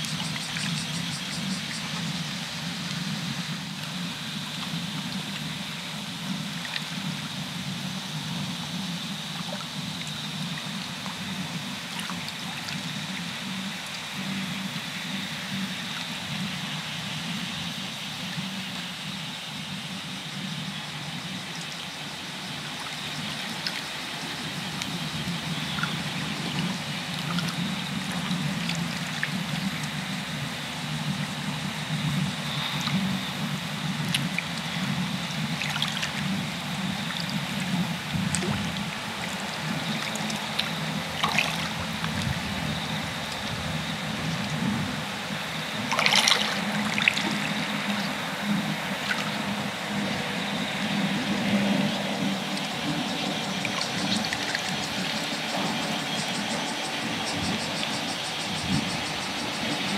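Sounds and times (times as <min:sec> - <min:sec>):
shallow water trickling and lapping: 0:00.0 - 0:59.9
faint dripping ticks: 0:20.5 - 0:43.6.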